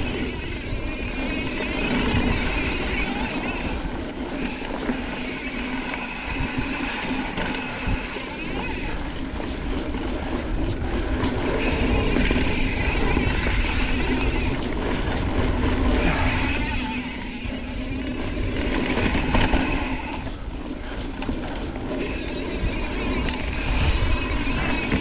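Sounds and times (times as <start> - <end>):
bike clicks and rattles: 0.0 - 25.0
bike tyres rolling on dirt: 0.0 - 25.0.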